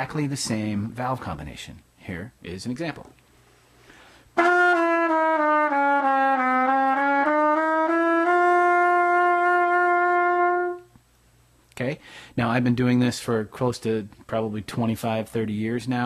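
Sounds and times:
trumpet warm-up: 0:04.4 - 0:11.0.

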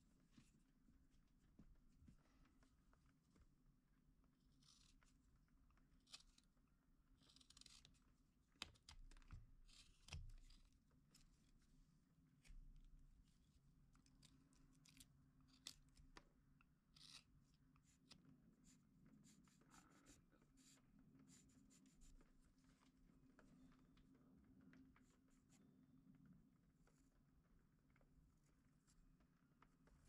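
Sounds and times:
pencil scratching on wood: 0:18.6 - 0:22.2.

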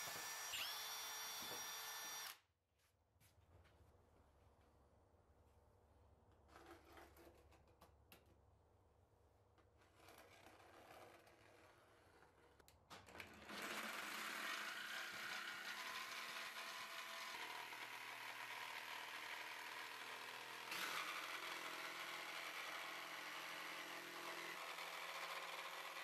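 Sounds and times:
jigsaw sawing through plywood: 0:00.0 - 0:02.4, 0:13.4 - 0:26.0.

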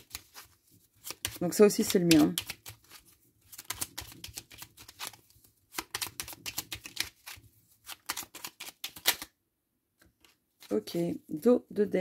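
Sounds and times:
cards being shuffled: 0:00.0 - 0:09.3.

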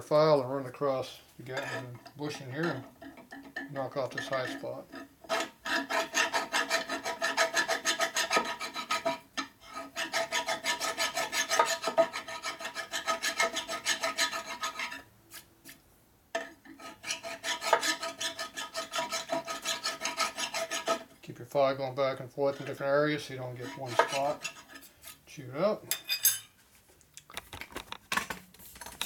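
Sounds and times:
hand file rasping on metal: 0:01.4 - 0:15.5, 0:16.4 - 0:21.1, 0:22.4 - 0:25.3.

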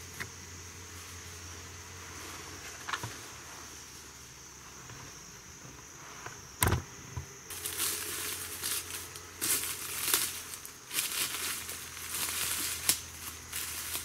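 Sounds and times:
high insect buzz: 0:00.0 - 0:14.0
footsteps crunching dry leaves: 0:07.5 - 0:14.0.

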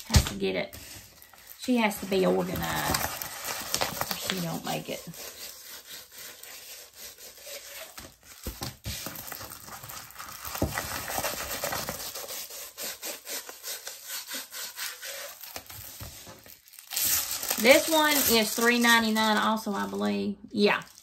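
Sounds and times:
plastic bags scratching and rubbing: 0:00.7 - 0:21.0.

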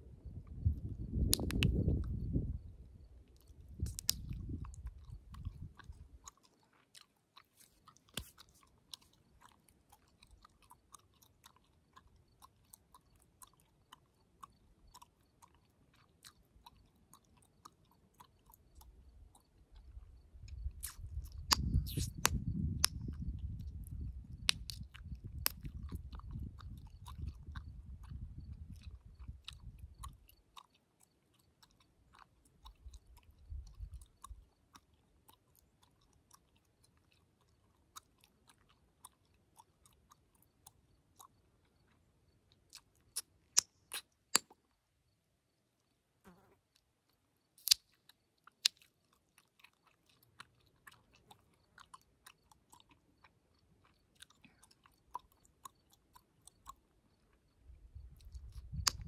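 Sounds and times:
gum chewing clicks and smacks: 0:00.3 - 0:44.8, 0:46.7 - 0:59.0
gum popping: 0:00.4 - 0:02.6, 0:03.3 - 0:42.0, 0:42.6 - 0:44.8, 0:47.6 - 0:56.9, 0:58.1 - 0:59.0.

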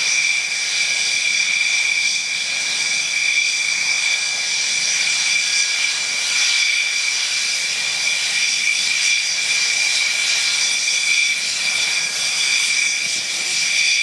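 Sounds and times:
turboprop engine whine: 0:00.0 - 0:14.0
propeller noise: 0:08.9 - 0:14.0.

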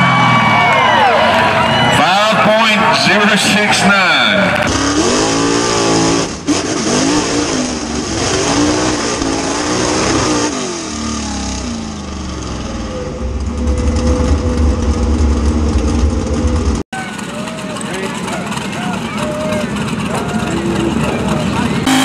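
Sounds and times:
truck engine revving: 0:00.0 - 0:22.0
heavy low rumble: 0:11.8 - 0:21.9.

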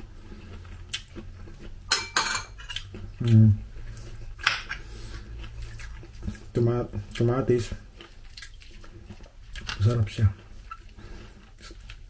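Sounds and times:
cutlery clinking on ceramic plate: 0:01.9 - 0:02.8.

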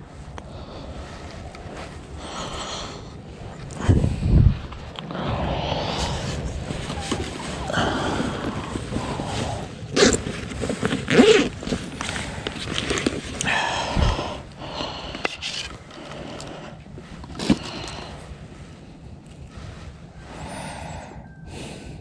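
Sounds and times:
gear rustling and scraping: 0:06.2 - 0:13.5, 0:15.0 - 0:20.1.

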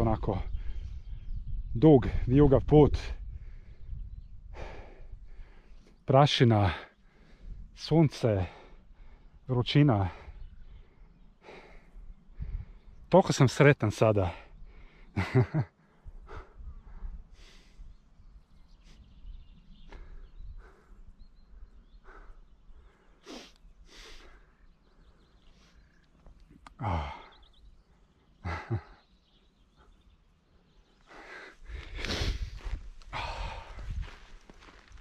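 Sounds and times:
low sighs: 0:26.6 - 0:30.0, 0:31.0 - 0:34.4
footsteps on dirt path: 0:31.1 - 0:35.0.

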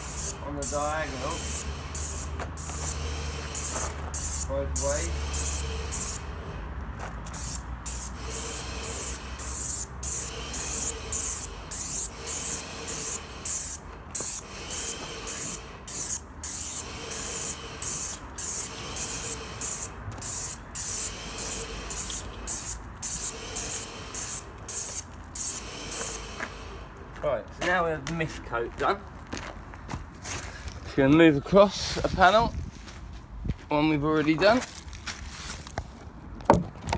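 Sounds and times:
paint sprayer hissing: 0:00.0 - 0:06.6, 0:07.3 - 0:27.0.

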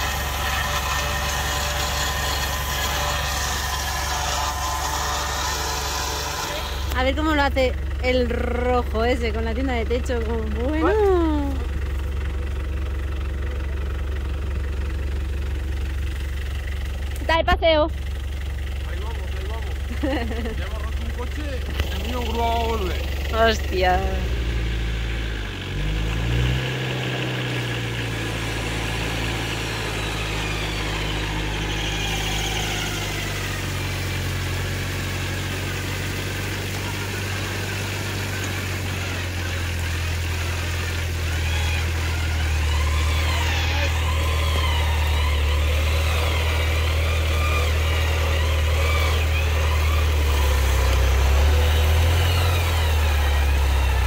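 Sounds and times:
whine rising and falling: 0:00.0 - 0:07.2, 0:27.0 - 0:54.0
off-road engine revving: 0:00.0 - 0:54.0.

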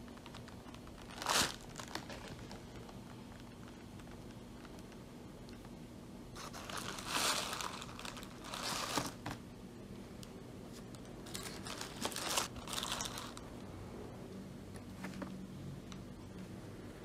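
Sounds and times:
plastic film crinkling: 0:00.0 - 0:05.0, 0:06.4 - 0:09.4, 0:10.8 - 0:13.6.

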